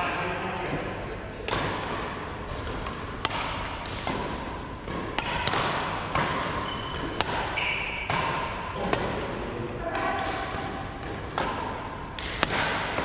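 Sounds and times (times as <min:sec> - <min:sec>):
rackets hitting shuttlecock: 0:01.4 - 0:13.0
shoe squeaks: 0:06.6 - 0:08.1.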